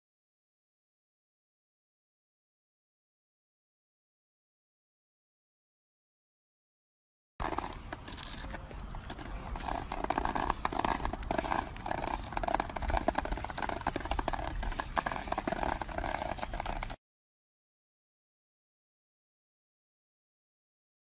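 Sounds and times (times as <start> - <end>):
plastic handle scraping on asphalt: 7.4 - 17.0.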